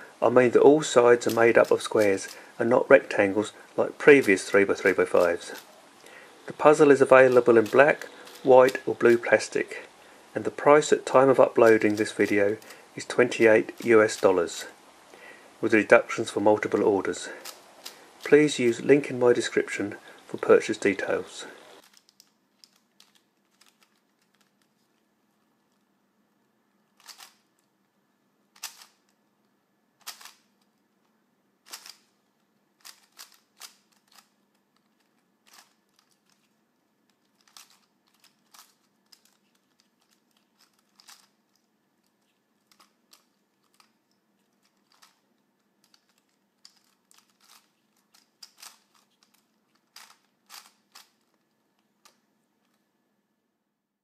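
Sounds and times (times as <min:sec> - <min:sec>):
plastic puzzle clicking: 0:01.2 - 0:02.4, 0:04.2 - 0:05.7, 0:06.9 - 0:09.2, 0:11.3 - 0:14.3, 0:17.4 - 0:18.8, 0:21.8 - 0:24.8, 0:27.0 - 0:27.7, 0:28.5 - 0:29.2, 0:30.0 - 0:30.7, 0:31.6 - 0:32.1, 0:32.8 - 0:36.5, 0:37.1 - 0:52.8.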